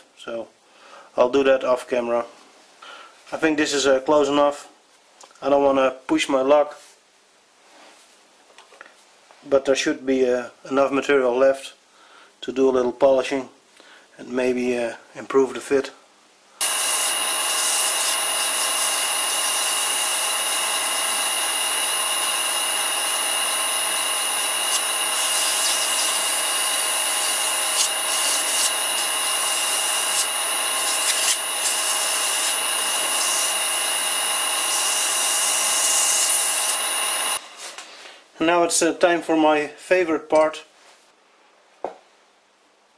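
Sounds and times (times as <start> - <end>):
lathe whining: 16.6 - 37.6
abrasive paper rubbing metal: 24.7 - 26.2, 27.2 - 29.1.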